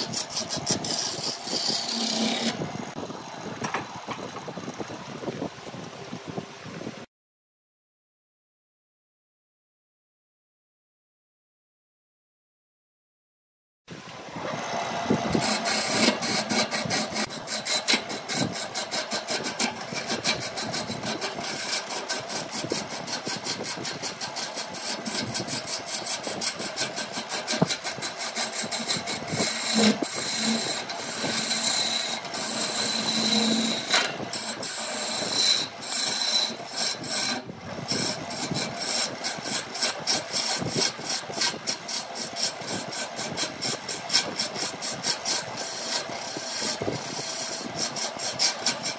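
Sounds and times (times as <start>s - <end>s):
lathe gouge scraping wood: 0.0s - 3.0s, 14.6s - 48.9s.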